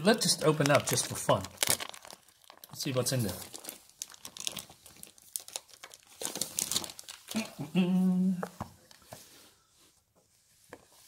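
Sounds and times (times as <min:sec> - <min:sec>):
plastic wrapping crinkling: 0:00.0 - 0:07.6
person humming: 0:07.3 - 0:08.6.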